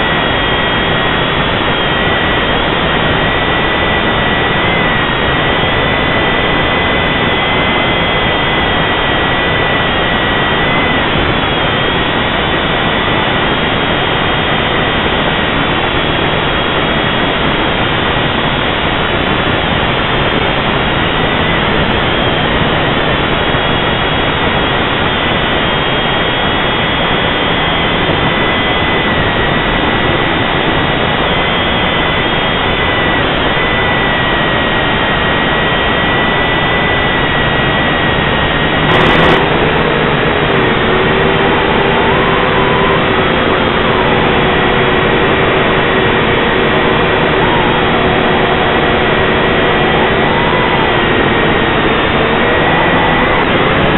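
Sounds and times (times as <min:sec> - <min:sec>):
drone motors whirring: 0:35.2 - 0:53.9.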